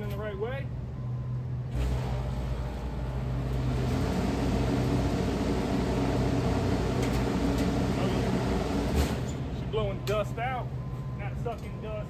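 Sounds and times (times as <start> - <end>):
air conditioner fan rushing air: 1.6 - 10.0.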